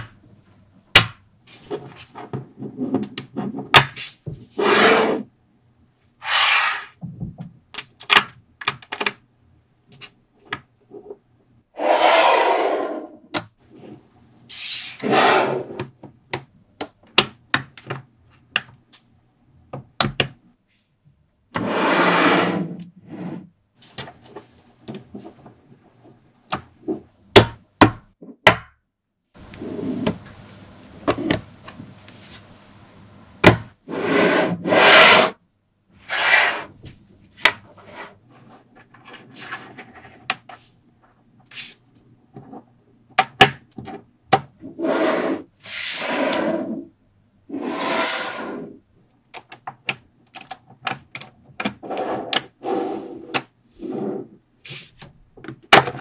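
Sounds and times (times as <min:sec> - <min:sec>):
balls scraping across tabletop: 0:01.5 - 0:05.3, 0:06.2 - 0:07.0, 0:11.8 - 0:13.2, 0:13.8 - 0:15.8, 0:21.6 - 0:23.5, 0:29.4 - 0:30.2, 0:33.9 - 0:35.4, 0:36.0 - 0:36.8, 0:37.7 - 0:40.7, 0:44.6 - 0:46.9, 0:47.5 - 0:48.8, 0:51.8 - 0:55.0.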